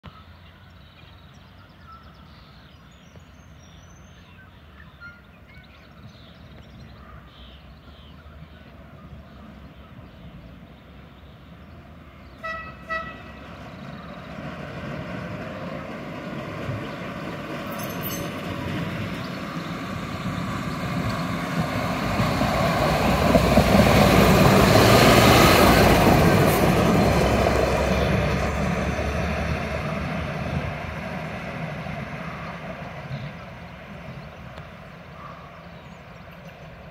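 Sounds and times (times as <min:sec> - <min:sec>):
truck horn toots: 0:12.4 - 0:13.4
truck running along rails: 0:12.4 - 0:35.1.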